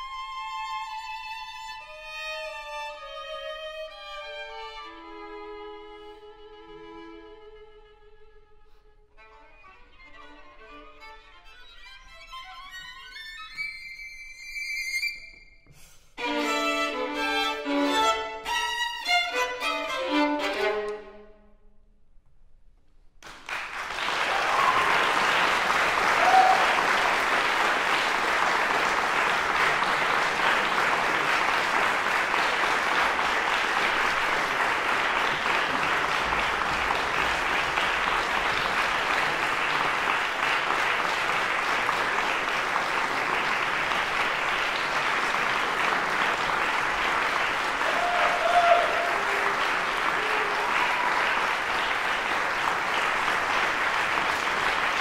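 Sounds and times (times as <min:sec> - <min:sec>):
audience applauding: 0:23.2 - 0:55.0.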